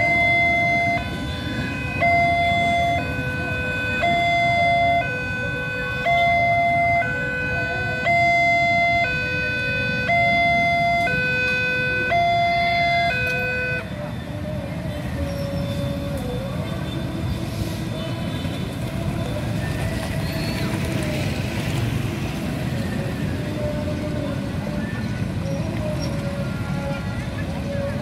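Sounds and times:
level crossing two-tone alarm: 0.0 - 13.8
vehicles crossing tracks: 0.0 - 28.0.

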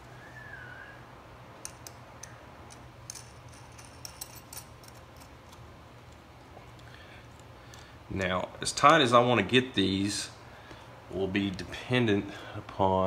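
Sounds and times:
low steady hum: 0.0 - 13.0
small metal clicks: 1.6 - 6.2.

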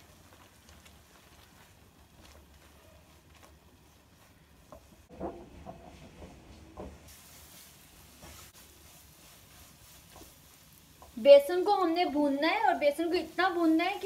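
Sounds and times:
faint high sizzle: 0.0 - 5.1, 7.1 - 14.0
spatula scraping flour in pan: 7.1 - 11.3.

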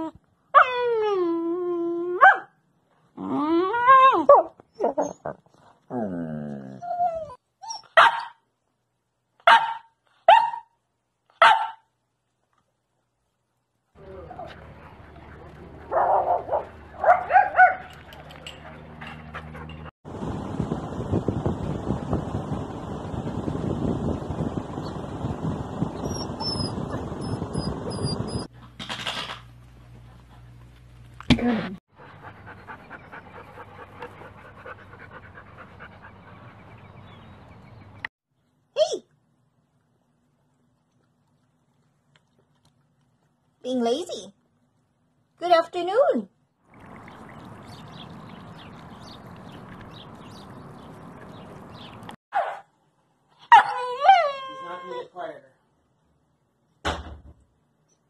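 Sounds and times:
puppy barking: 2.2 - 2.5, 7.7 - 8.4, 9.4 - 10.7, 11.4 - 11.9, 15.9 - 18.0, 52.3 - 52.7, 53.4 - 54.2
dog whining grumble: 4.8 - 7.4
dog panting: 14.3 - 17.0, 18.0 - 19.9, 31.9 - 37.1.

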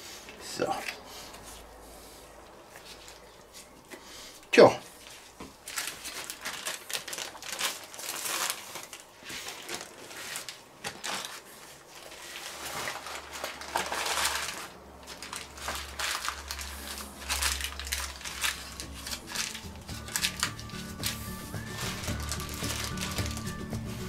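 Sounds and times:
paper crinkling and rustling: 4.9 - 24.0.

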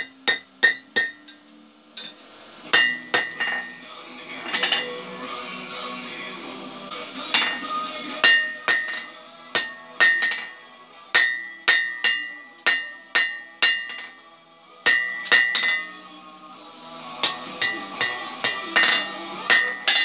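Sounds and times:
hammer striking on anvil: 0.0 - 3.8, 7.3 - 14.2, 14.8 - 16.1, 17.1 - 20.0.

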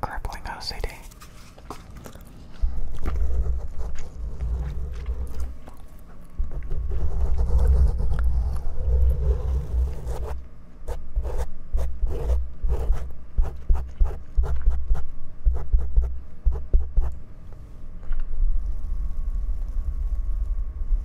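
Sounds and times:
handling rumble on microphone: 2.6 - 5.6
crackly scratches on windscreen: 18.5 - 21.0.

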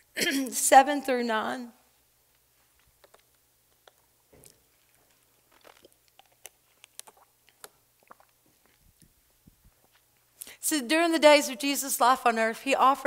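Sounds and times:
plastic bottle crackling: 3.0 - 10.0.

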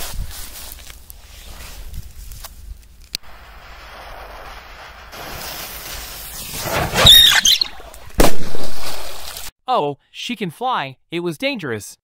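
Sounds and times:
firecracker hissing and squealing: 3.2 - 8.2
firecracker bang: 3.2 - 9.2
firecracker fuse hissing: 3.2 - 9.5.

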